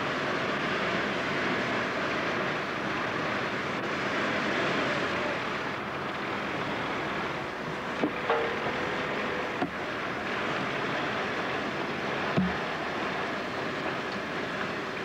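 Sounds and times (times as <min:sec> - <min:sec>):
sawmill machinery running: 0:04.8 - 0:15.0
sharp knocks: 0:08.0 - 0:08.8.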